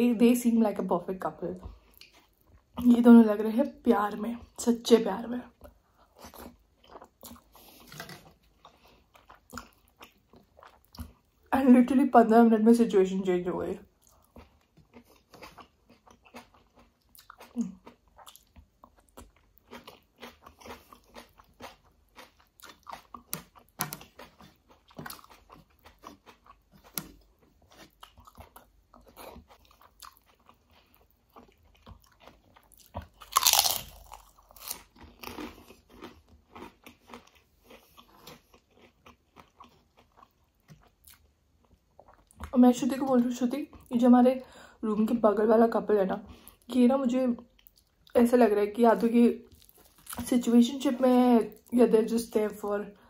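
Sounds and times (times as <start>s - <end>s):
person chewing and crunching: 1.5s - 3.0s, 5.5s - 11.5s, 13.9s - 42.6s, 47.4s - 48.2s, 49.1s - 50.4s.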